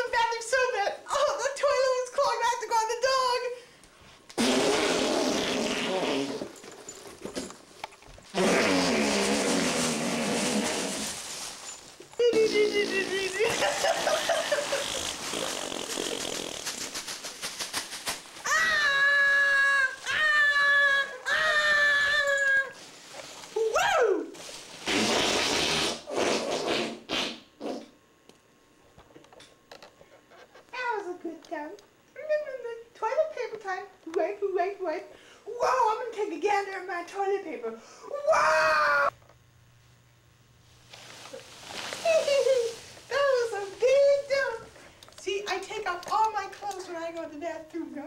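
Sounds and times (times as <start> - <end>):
rustling hissing noise: 4.0 - 18.5, 22.2 - 26.8, 40.6 - 46.4
person making mouth fart noises: 4.3 - 6.6, 8.3 - 11.2, 12.3 - 17.7, 24.8 - 28.0.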